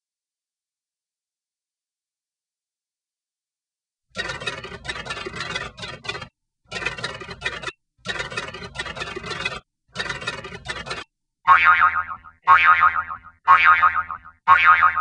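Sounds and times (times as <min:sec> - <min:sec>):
cartoon boing: 0:11.5 - 0:15.0.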